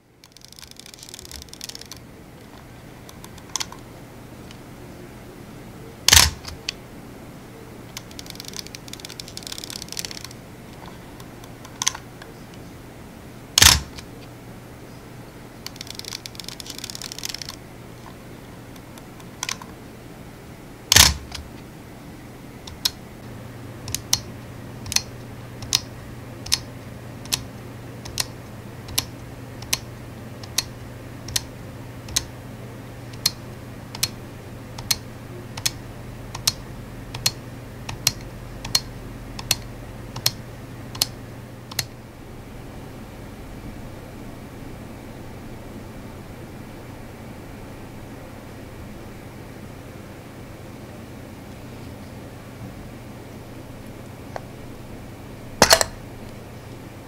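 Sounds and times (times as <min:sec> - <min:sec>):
dial clicking through detents: 0:00.2 - 0:03.8, 0:06.1 - 0:06.8, 0:07.9 - 0:12.0, 0:13.6 - 0:14.1, 0:15.6 - 0:17.6, 0:20.9 - 0:21.5, 0:22.7 - 0:23.0, 0:23.8 - 0:32.3, 0:33.1 - 0:34.2, 0:34.8 - 0:41.9.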